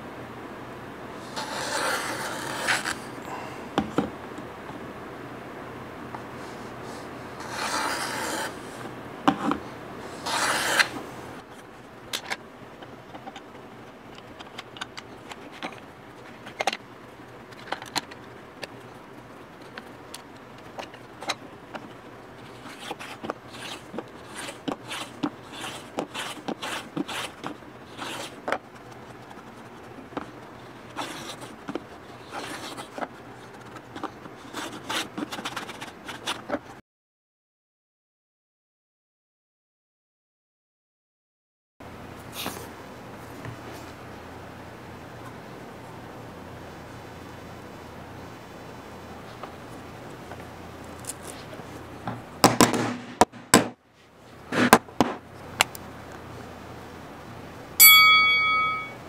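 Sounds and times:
hand tool scraping wood: 1.2s - 3.1s, 7.4s - 8.7s, 10.1s - 11.0s.

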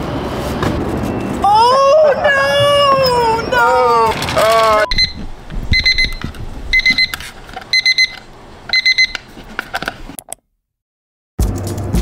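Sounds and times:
alarm clock beeping: 4.9s - 5.2s, 5.8s - 9.2s.

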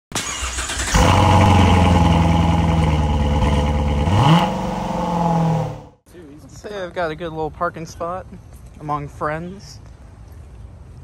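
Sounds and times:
car engine revving: 0.2s - 6.0s.

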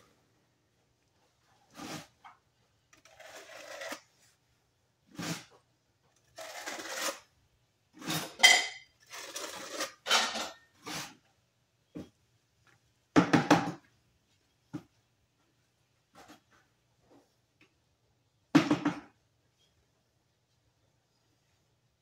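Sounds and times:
trowel scraping adhesive on stone: 3.0s - 4.1s, 6.4s - 7.3s.

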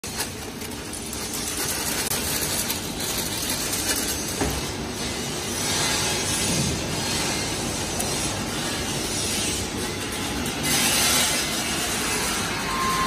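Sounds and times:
metal parts clattering: 0.0s - 6.4s
parts washer running: 0.0s - 13.0s.

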